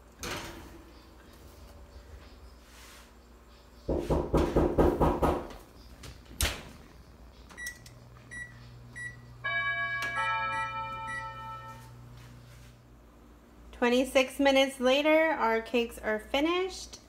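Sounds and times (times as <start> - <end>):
oven door and rack rattling: 0.0 - 1.3, 3.9 - 6.9
oven chime: 0.0 - 2.7, 7.5 - 12.6
low oven hum: 0.0 - 17.0
oven door shutting: 0.2 - 1.2
oven control panel beeps: 7.4 - 12.0.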